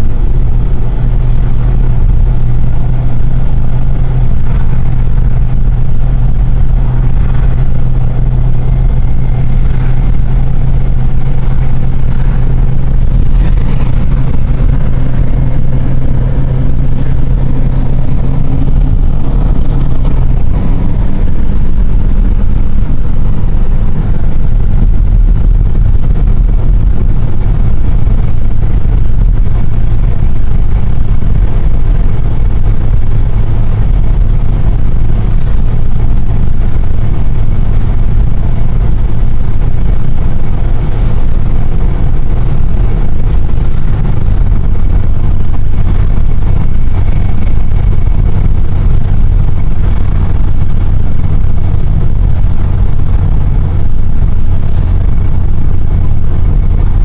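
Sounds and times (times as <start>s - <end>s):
car engine and road rumble: 0.0s - 57.0s.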